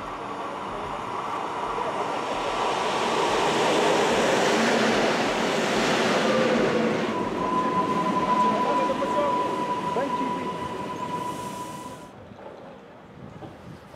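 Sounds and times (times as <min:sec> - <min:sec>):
train passing close: 0:00.0 - 0:13.9.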